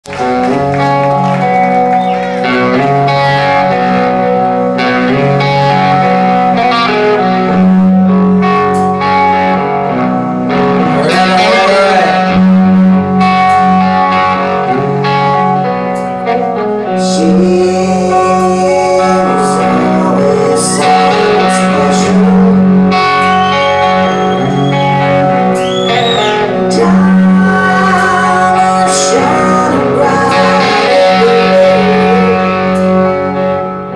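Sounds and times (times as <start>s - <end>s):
electric guitar: 0.0s - 33.9s
hard rock band playing: 0.0s - 33.9s.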